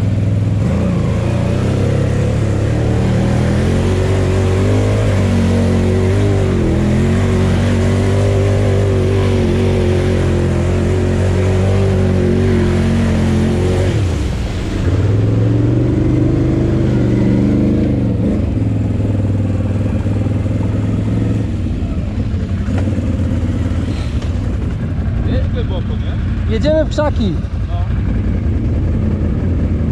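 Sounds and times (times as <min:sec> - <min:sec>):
quad engine running: 0:00.0 - 0:29.9
water splashing: 0:01.4 - 0:18.8.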